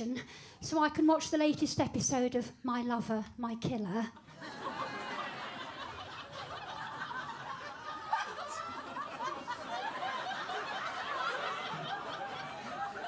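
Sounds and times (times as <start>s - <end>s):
audience laughing: 4.2s - 13.0s.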